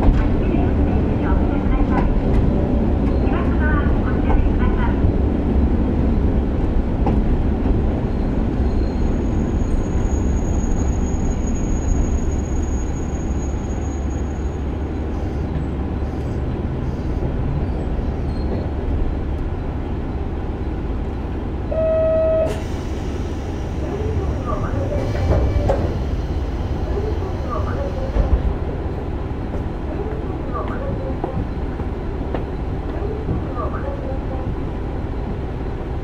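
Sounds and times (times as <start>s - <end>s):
train engine and wheel rumble: 0.0s - 36.0s.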